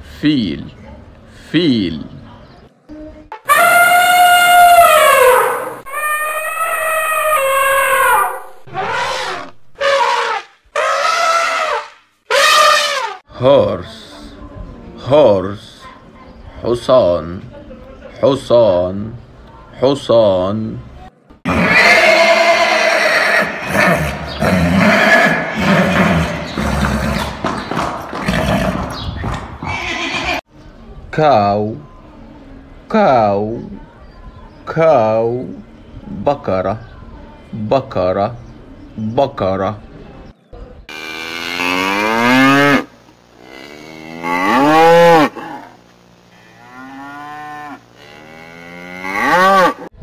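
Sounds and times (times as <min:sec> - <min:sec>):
cow mooing: 0:21.5 - 0:27.3, 0:40.9 - 0:45.8, 0:46.4 - 0:49.9
horse neighing: 0:21.5 - 0:30.4.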